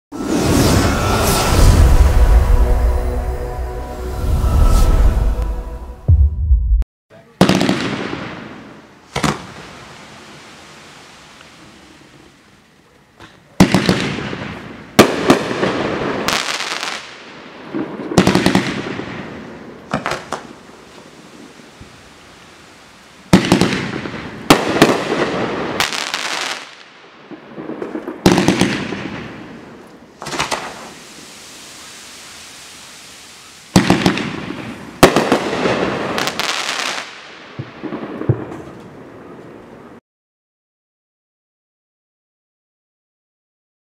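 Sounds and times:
fireworks bangs: 6.1 - 10.2, 13.6 - 22.0, 23.3 - 39.8
fireworks crackling: 13.6 - 39.8.

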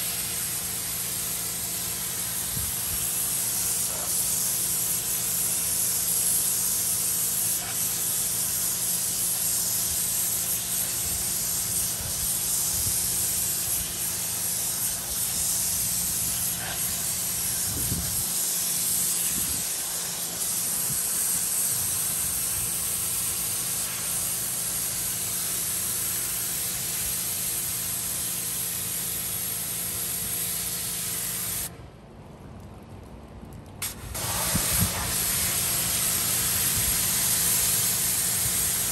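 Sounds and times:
steady hum: 0.0 - 28.8
pressure washer spraying: 0.0 - 31.7, 33.8 - 38.9.

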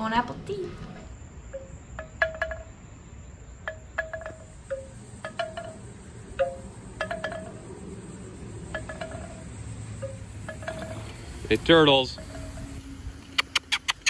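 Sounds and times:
wind chimes ringing: 1.5 - 13.2.

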